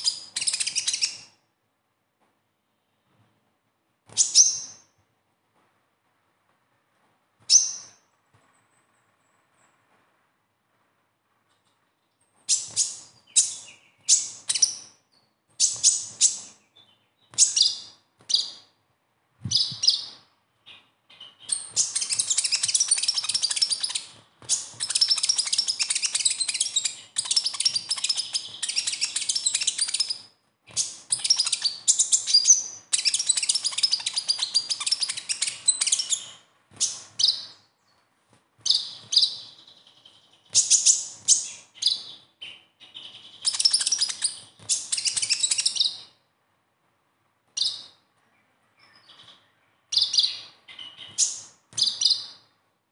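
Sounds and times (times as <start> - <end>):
sunbird twittering song: 0.0 - 1.3, 4.2 - 4.9, 12.0 - 18.6, 19.5 - 38.0, 38.7 - 46.2, 47.6 - 52.4.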